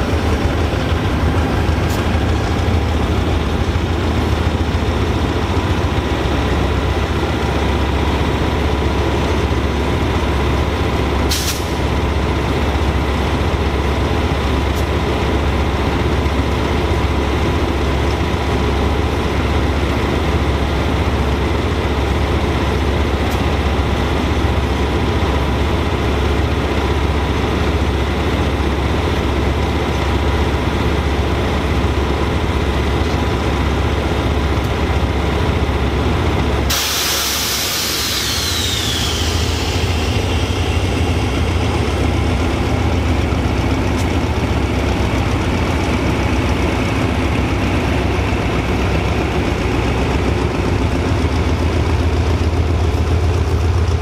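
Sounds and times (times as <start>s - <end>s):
diesel locomotive engine idling: 0.0s - 54.0s
air brakes hissing: 11.2s - 11.9s, 36.6s - 41.4s.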